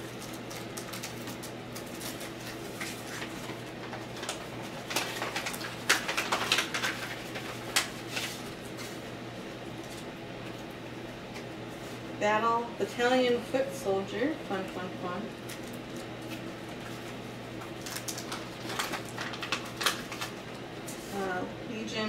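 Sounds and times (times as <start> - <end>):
cards and envelopes rustling: 0.0 - 9.1, 15.4 - 21.2
paper crinkling: 0.0 - 9.1, 15.4 - 20.6
steady low hum: 0.0 - 22.0.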